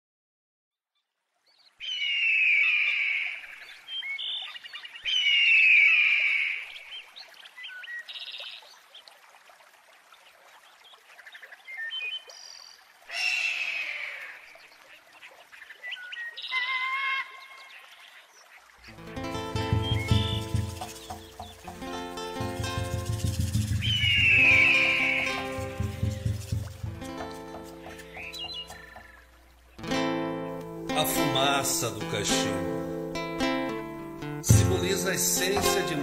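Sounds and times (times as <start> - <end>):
bird chirps and trills: 15.1 - 30.0
bird calls sliding down in pitch: 19.5 - 29.2.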